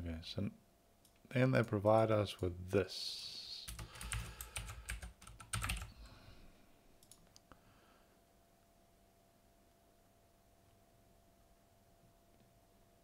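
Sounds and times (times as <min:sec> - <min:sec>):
computer keyboard typing: 0:03.7 - 0:06.0.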